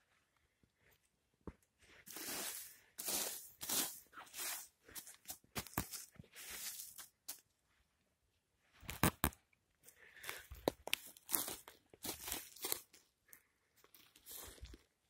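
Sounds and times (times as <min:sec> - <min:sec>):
pine needles and twigs crunching: 0:02.1 - 0:07.4, 0:10.2 - 0:13.1, 0:13.8 - 0:14.9.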